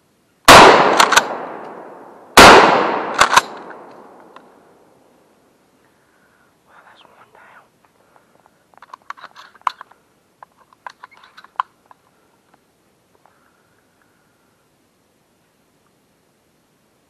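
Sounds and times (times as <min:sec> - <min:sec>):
sharp close clicks and crackles: 0:00.9 - 0:01.8, 0:03.1 - 0:04.5, 0:08.8 - 0:12.6
brief rustle: 0:08.2 - 0:12.6.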